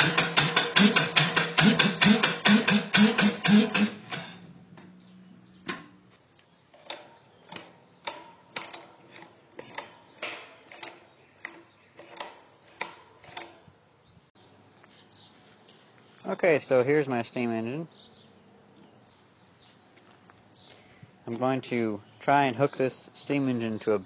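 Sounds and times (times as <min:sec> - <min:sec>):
crankshaft clicks and knocks: 0:00.0 - 0:04.3, 0:06.8 - 0:13.6
air-driven engine puffing: 0:00.0 - 0:04.6.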